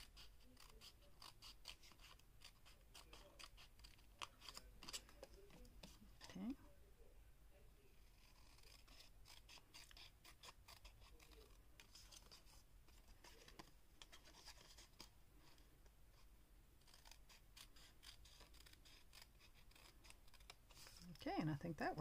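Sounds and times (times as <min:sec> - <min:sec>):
scissors snipping paper: 0:00.0 - 0:06.6, 0:08.1 - 0:15.6, 0:16.8 - 0:21.2.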